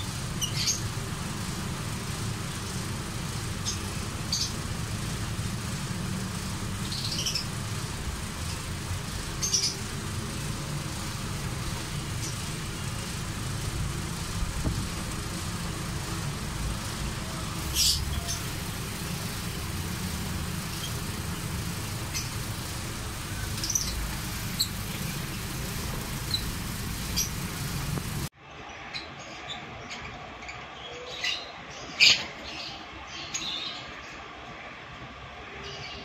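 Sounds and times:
lovebirds chirping: 0.0 - 28.3
steady low rumble: 0.0 - 28.3.

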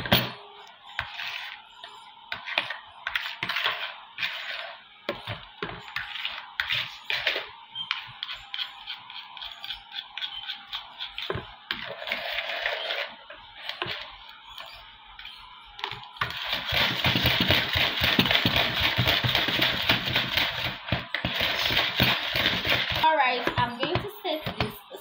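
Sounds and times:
hand beater in plastic bowl: 15.8 - 24.9.

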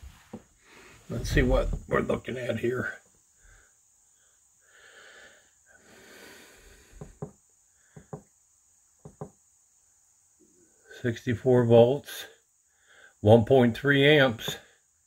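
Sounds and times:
faint breathing: 0.6 - 1.3, 3.3 - 8.3, 12.6 - 13.2.

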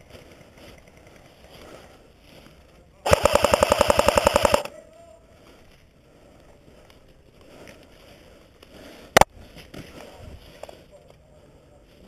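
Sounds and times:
airsoft gun rapid shots: 3.1 - 4.7.

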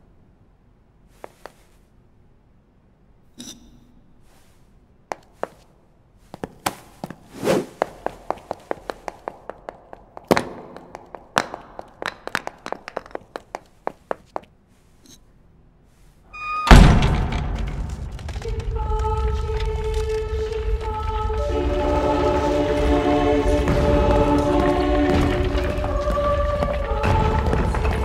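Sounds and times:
short scrape: 7.3 - 7.8.

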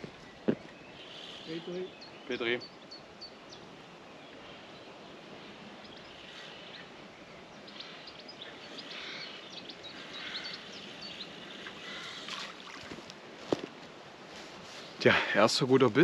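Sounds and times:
outdoor background noise: 0.0 - 16.0
bird chirps: 0.1 - 3.6, 4.2 - 12.5.

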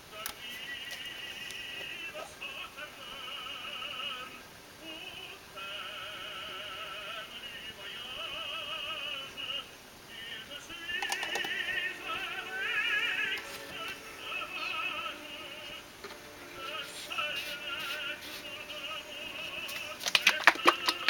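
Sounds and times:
operatic singing voice: 0.0 - 21.0
cluster of clicks: 10.9 - 11.6, 19.7 - 21.0.

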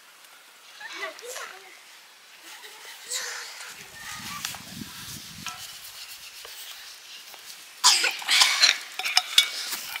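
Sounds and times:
food sizzling in a pan: 0.0 - 10.0
scraping in a pan: 2.9 - 10.0.

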